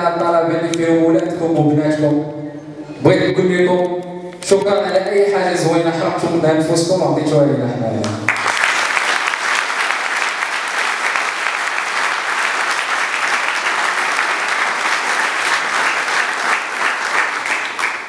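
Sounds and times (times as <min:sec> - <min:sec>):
audience applauding: 0:08.3 - 0:18.0.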